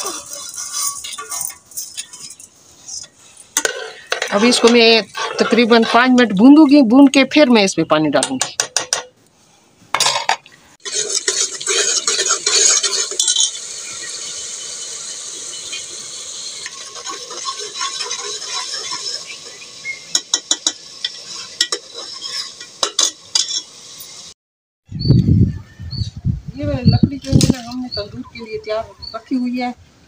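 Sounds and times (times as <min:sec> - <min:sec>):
metal ladle scraping pot: 0:00.0 - 0:06.5, 0:10.0 - 0:23.8
steady sizzle: 0:00.0 - 0:09.5, 0:10.7 - 0:24.4.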